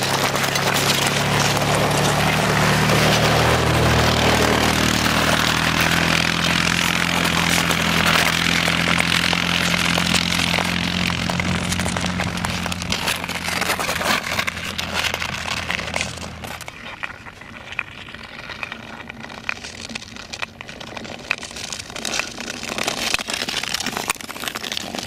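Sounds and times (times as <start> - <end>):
quad bike engine idling: 0.0 - 16.6
skate blades scraping ice: 0.0 - 25.0.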